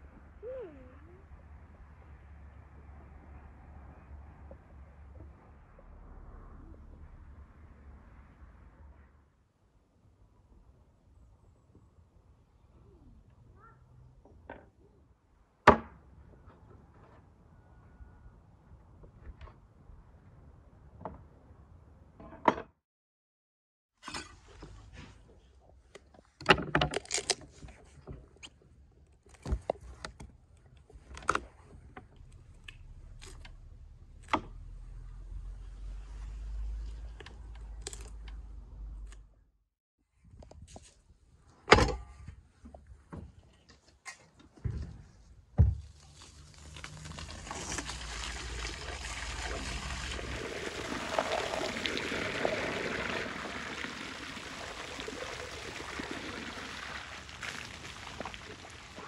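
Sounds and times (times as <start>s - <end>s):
water pouring into metal colander: 46.3s - 59.0s.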